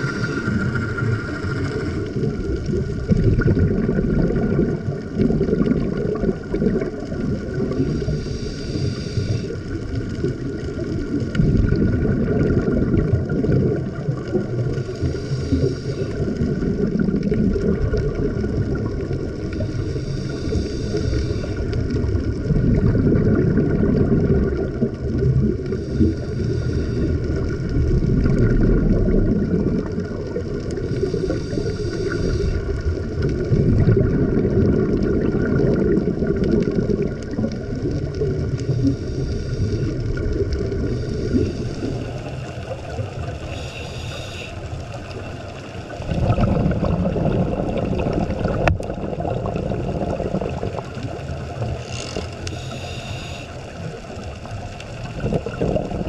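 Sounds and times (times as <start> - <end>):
hissing breath through regulator: 0.0 - 2.1, 7.7 - 9.8, 14.7 - 16.4, 19.4 - 21.8, 25.7 - 27.5, 30.7 - 33.0, 38.6 - 40.2, 40.8 - 45.4, 51.7 - 54.2
rumbling underwater bubbles: 0.0 - 56.0.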